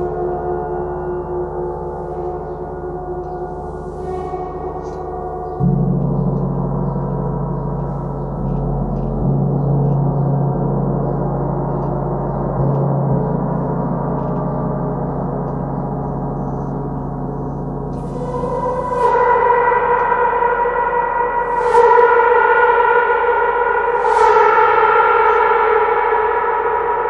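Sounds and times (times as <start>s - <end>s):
gong ringing: 17.8s - 27.0s.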